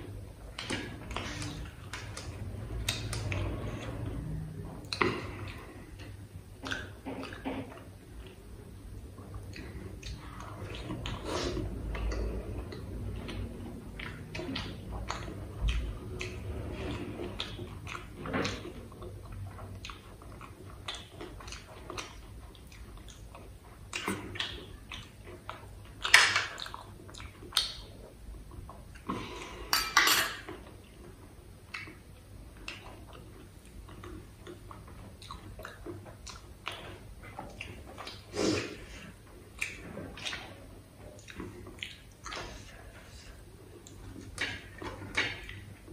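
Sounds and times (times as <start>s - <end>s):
chewing clicks: 0.6s - 4.2s, 9.2s - 28.0s, 39.5s - 45.8s.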